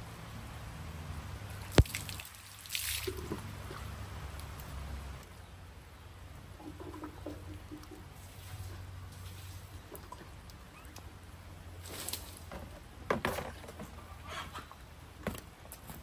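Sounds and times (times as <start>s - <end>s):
water splashing into plastic bucket: 1.6s - 4.6s, 6.6s - 8.4s.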